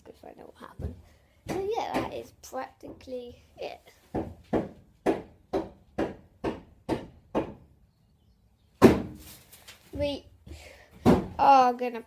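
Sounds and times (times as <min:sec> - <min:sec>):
loud thump: 0:08.8 - 0:09.3.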